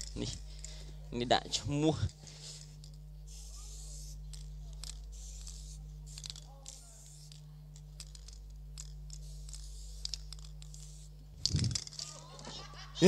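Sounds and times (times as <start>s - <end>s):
steady low hum: 0.0s - 13.0s
spray can hissing: 2.3s - 7.4s, 8.0s - 12.4s.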